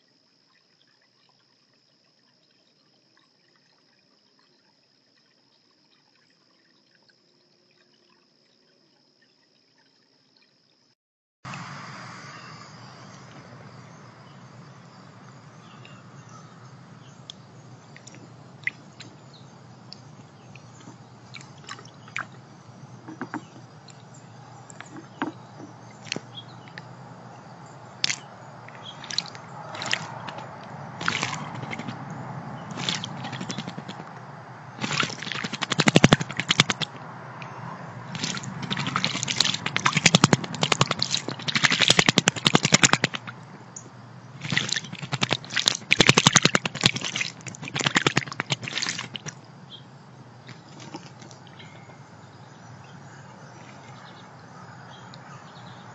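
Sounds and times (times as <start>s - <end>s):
bird splashing in water: 11.5s - 49.4s, 50.4s - 52.4s, 53.4s - 54.3s
water taps and drips: 13.2s - 49.4s, 50.4s - 52.0s.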